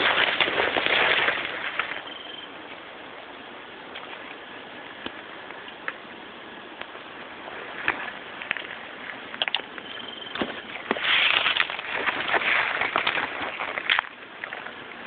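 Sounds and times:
leaves rustling underfoot: 0.0s - 3.1s, 3.9s - 15.0s
twigs snapping: 10.4s - 14.7s.

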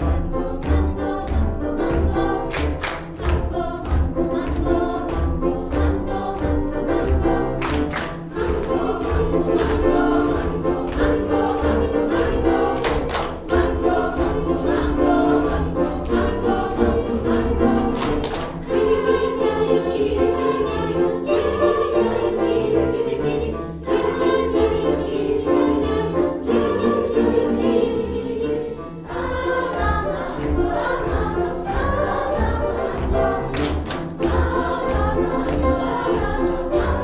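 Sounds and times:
children's choir singing: 0.0s - 37.0s.

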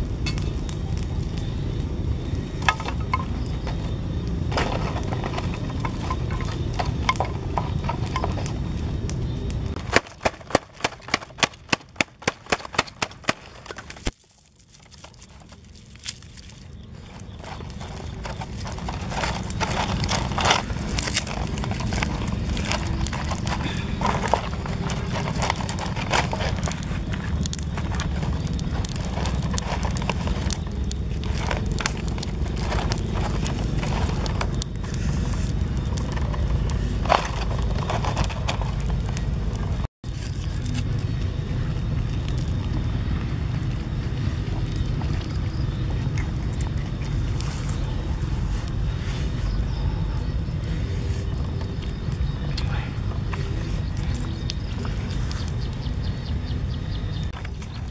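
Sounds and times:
wind rumbling on microphone: 0.0s - 57.9s
clicks and rustles of hands: 4.5s - 41.3s.

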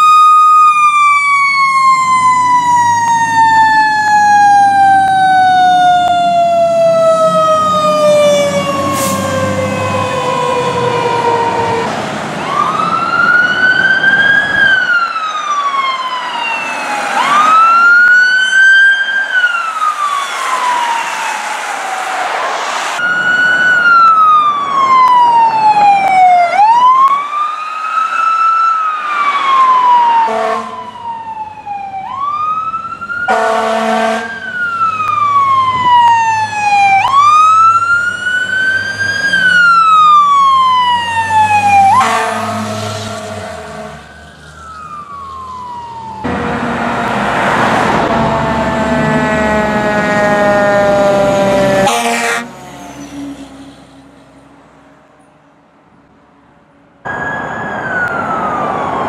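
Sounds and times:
fire truck siren wailing: 0.0s - 54.6s, 57.0s - 59.0s
horn blasts: 30.2s - 30.9s, 33.3s - 34.3s, 41.9s - 44.0s, 46.2s - 52.6s
truck engine rumble: 34.2s - 56.2s, 57.0s - 59.0s.

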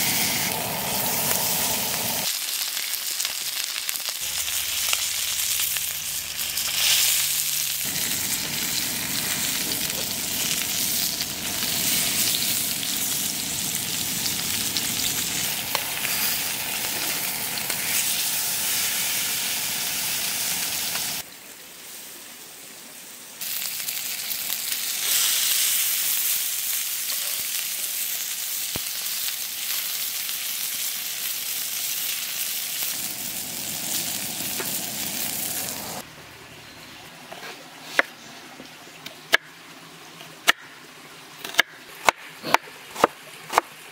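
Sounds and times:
fish sizzling in oil: 0.0s - 21.2s, 23.4s - 36.0s.

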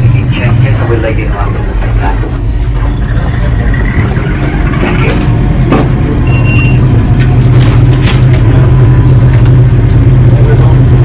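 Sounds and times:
train carriage hum: 0.0s - 11.0s
short high electronic beep: 6.2s - 6.9s.

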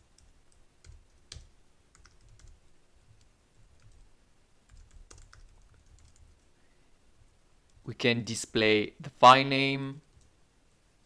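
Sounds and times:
faint computer keyboard typing: 0.0s - 6.5s, 10.0s - 10.4s.

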